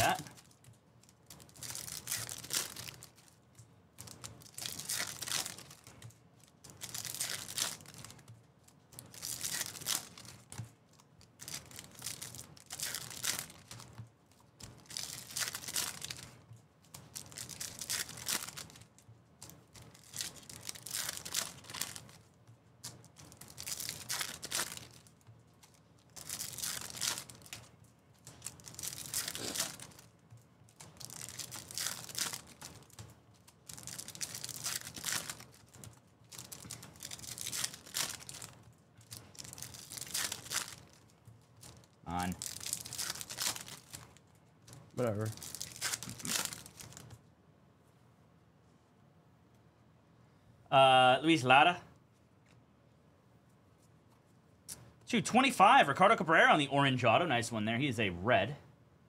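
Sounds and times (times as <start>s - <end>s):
foil wrappers tearing and crinkling: 0.0s - 3.4s, 4.0s - 8.3s, 8.9s - 47.1s.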